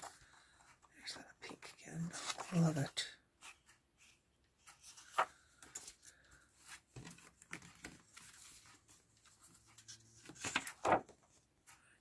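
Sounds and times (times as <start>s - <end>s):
paper rustling and crackling: 2.1s - 2.8s, 4.6s - 11.4s.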